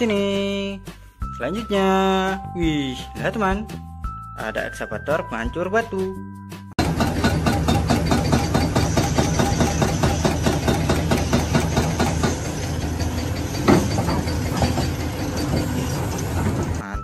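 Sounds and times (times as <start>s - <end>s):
loud metal clank: 6.8s - 16.8s
diesel engine drone: 6.8s - 16.9s
hydraulic breaker hammering concrete: 6.8s - 16.9s.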